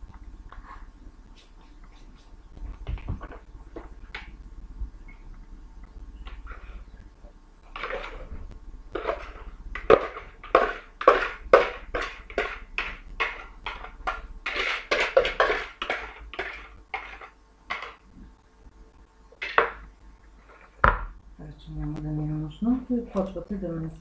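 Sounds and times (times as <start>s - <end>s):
utensil scraping plastic bowl: 7.7s - 8.3s, 9.0s - 18.0s.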